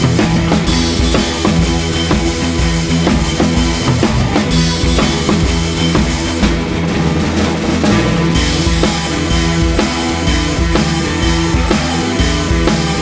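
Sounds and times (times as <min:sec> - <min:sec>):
drum kit beat: 0:00.0 - 0:13.0
sustained bass and chords: 0:00.0 - 0:13.0.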